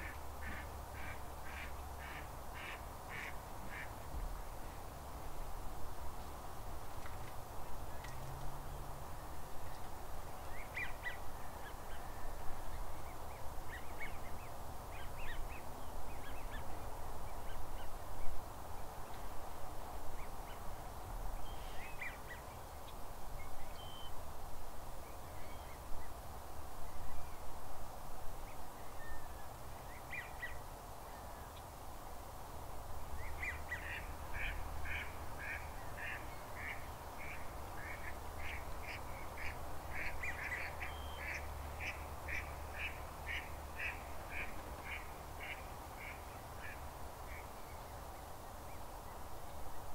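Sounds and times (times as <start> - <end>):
ducks calling: 0.0 - 4.0, 33.4 - 46.8
steady background hiss: 0.0 - 49.9.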